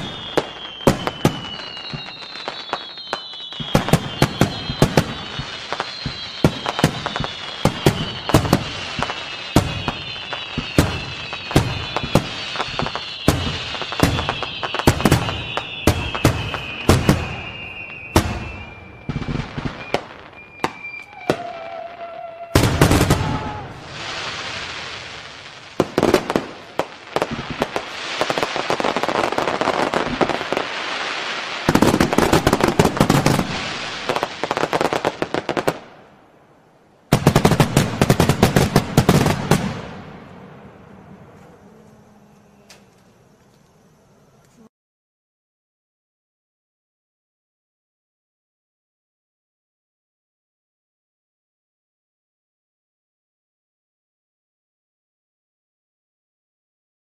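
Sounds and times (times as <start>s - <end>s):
falling firework whistle: 0.0s - 35.8s
firework bangs and crackling: 0.0s - 36.1s, 37.1s - 41.4s.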